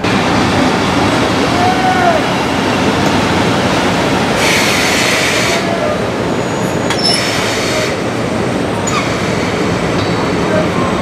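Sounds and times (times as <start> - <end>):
train rolling past rumble: 0.0 - 11.0
steel wheels squealing on rails: 4.3 - 8.1, 8.8 - 11.0.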